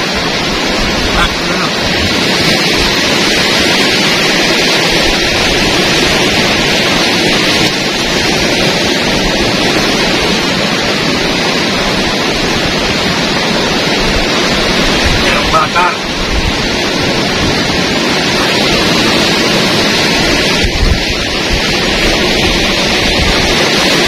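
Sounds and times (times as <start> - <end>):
heavy sea surf: 0.0 - 24.0.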